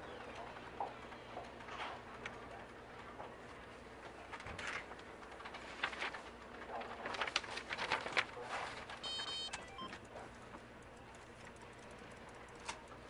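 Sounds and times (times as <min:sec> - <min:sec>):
paper rustling: 0:01.7 - 0:09.3.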